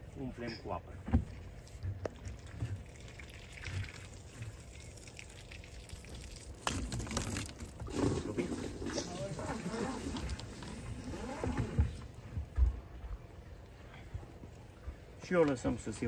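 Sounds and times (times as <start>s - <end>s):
water pouring into tank: 2.2s - 10.6s.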